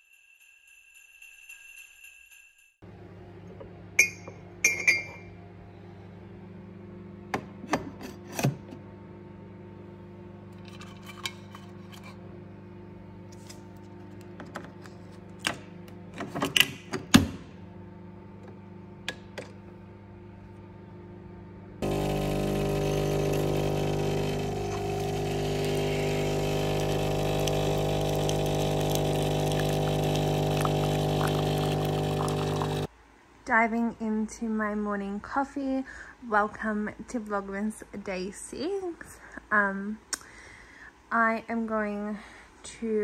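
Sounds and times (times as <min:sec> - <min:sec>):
crockery clinking: 0:04.0 - 0:05.3.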